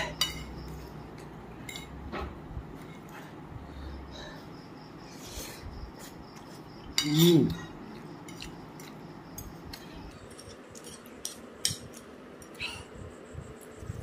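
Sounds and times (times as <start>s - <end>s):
forks clicking on a plate: 0.0s - 2.0s, 6.9s - 12.6s.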